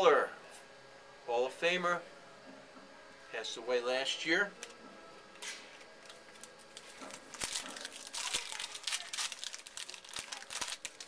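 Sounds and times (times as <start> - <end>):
wrapper being torn and crinkled: 6.0 - 11.0.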